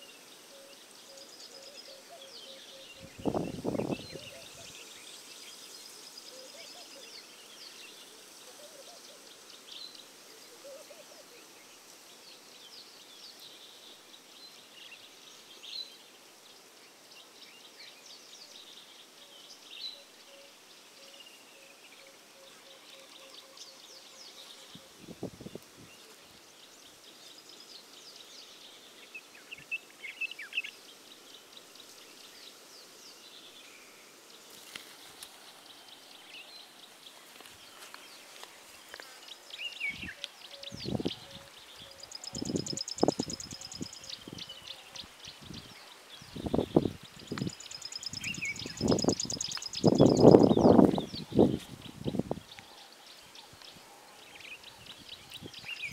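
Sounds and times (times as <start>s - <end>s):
birds chirping and calling: 0.7s - 4.9s, 36.0s - 55.9s.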